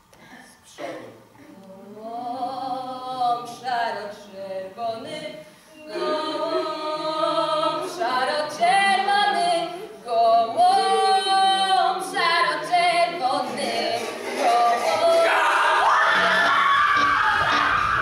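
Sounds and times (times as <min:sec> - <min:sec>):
unaccompanied singing voices: 0:00.7 - 0:18.0.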